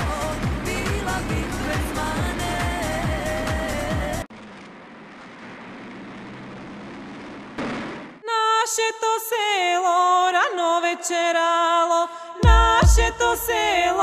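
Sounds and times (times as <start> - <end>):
steady noise: 0.0 - 8.3
woman singing folk melody: 8.2 - 14.0.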